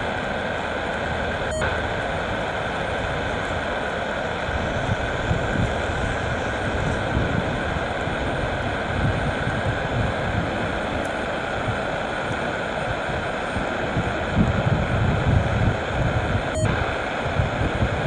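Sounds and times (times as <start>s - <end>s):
wind on microphone: 4.4s - 18.0s.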